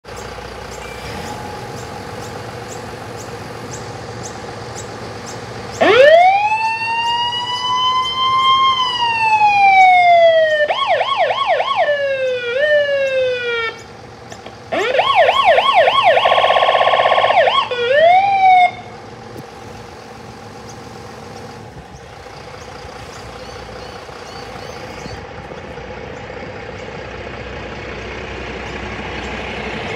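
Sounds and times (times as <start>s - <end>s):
fire truck siren: 0.0s - 21.7s
diesel engine idling: 0.0s - 29.9s.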